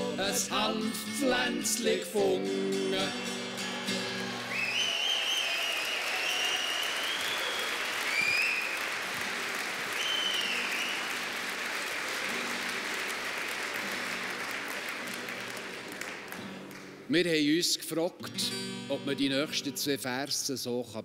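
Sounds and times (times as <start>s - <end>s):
audience applauding: 3.6s - 17.0s
high gliding whistle tones: 4.5s - 8.8s, 10.0s - 11.1s.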